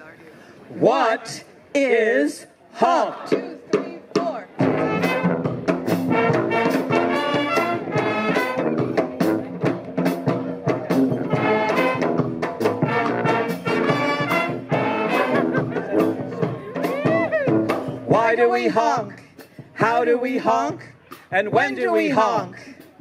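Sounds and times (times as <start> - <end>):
trumpets and trombones: 2.3 - 19.2
drums and cymbals beat: 3.3 - 23.0.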